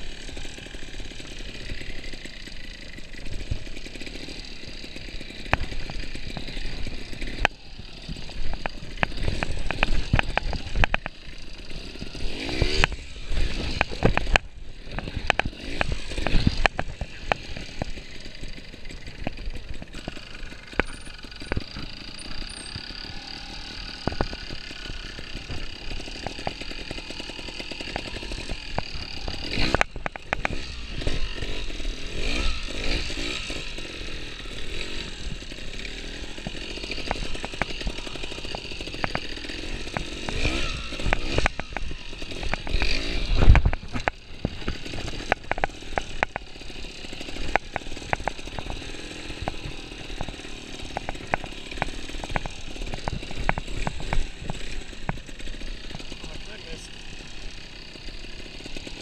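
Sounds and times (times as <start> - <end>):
motorcycle engine revving: 0.0 - 59.0
knocks and clanks from bike: 5.2 - 18.0, 18.6 - 31.6, 36.1 - 56.3.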